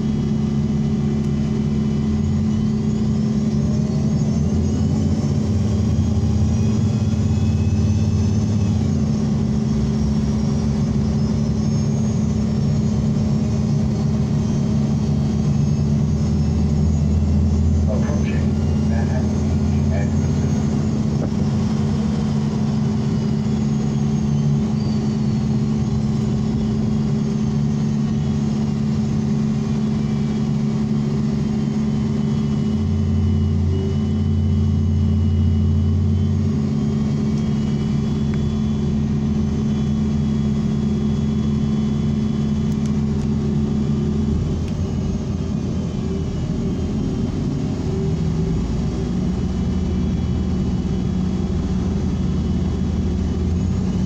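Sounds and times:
road noise: 0.0 - 24.0
bus engine hum: 0.0 - 54.0
faint high whine: 0.0 - 54.0.

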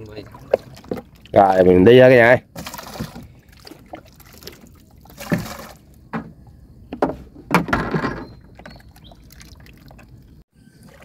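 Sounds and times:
splashes in shallow water: 0.0 - 1.4, 2.5 - 5.9, 8.6 - 10.3.

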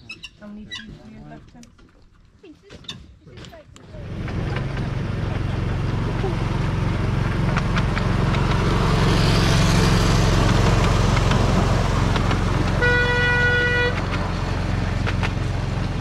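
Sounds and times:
miniature train engine running: 3.9 - 16.0
train horn toot: 12.7 - 14.2.

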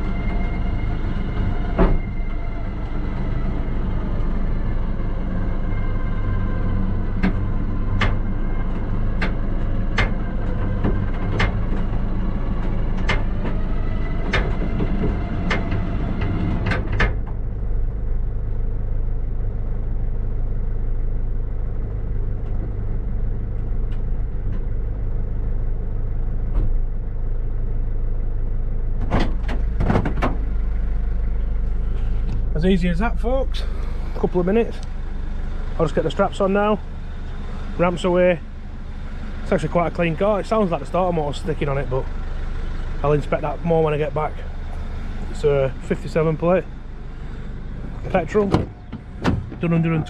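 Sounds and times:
winch drone with clicks: 0.0 - 17.6, 29.1 - 32.5, 33.4 - 50.0
truck engine low hum: 0.0 - 50.0.

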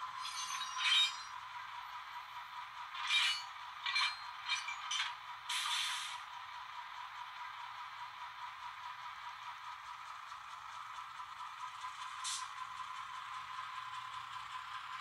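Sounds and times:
metallic clinks and scrapes: 0.2 - 1.4, 3.0 - 5.2.

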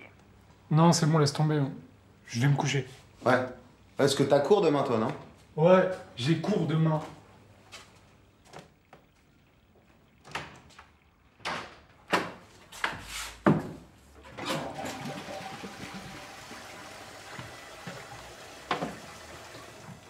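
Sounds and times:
running water rushing: 14.3 - 20.0.

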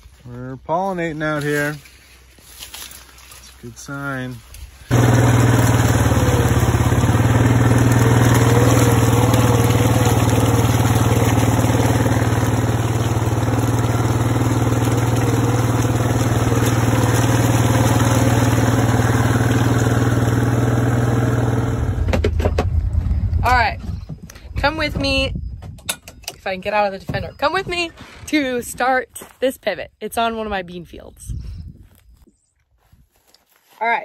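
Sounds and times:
tyres churning through mud: 4.9 - 22.1
utility vehicle engine running: 4.9 - 23.5.

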